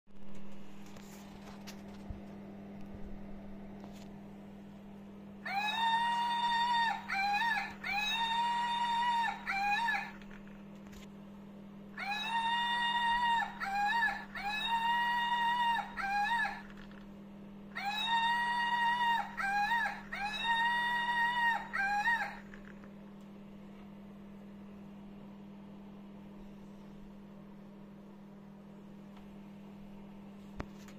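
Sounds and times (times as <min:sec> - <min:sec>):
toy monkey electronic cry: 0:05.5 - 0:10.5, 0:12.0 - 0:17.0, 0:17.8 - 0:22.8.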